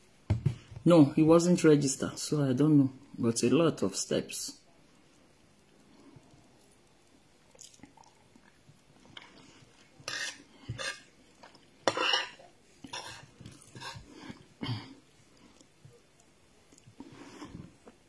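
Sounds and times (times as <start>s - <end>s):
chewing rice: 5.8s - 11.8s
spoon scraping a plate: 10.0s - 11.1s, 11.9s - 14.0s.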